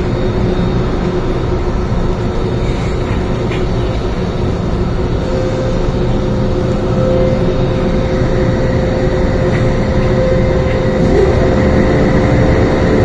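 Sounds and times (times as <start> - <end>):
constant tone: 0.0 - 13.0
train equipment humming: 0.0 - 13.0
low rumble: 6.7 - 13.0.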